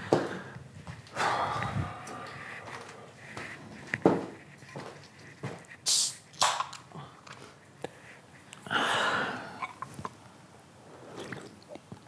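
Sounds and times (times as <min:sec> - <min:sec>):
beer can hiss: 0:05.8 - 0:06.3.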